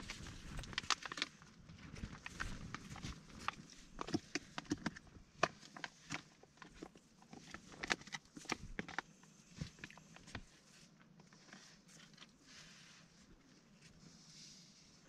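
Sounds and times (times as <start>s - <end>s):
plastic pouch crinkling: 0.0s - 10.5s.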